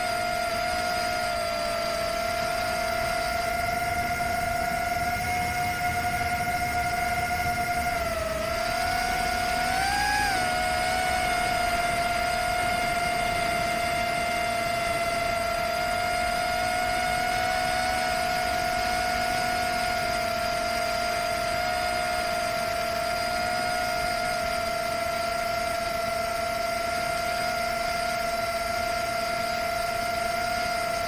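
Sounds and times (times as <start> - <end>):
low wind rumble: 0.0 - 19.8
drone motors whining: 0.0 - 31.0.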